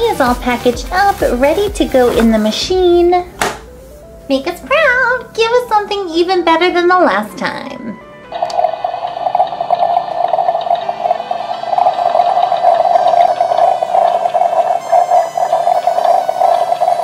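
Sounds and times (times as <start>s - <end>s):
toy gurgling water sound: 8.3s - 17.0s.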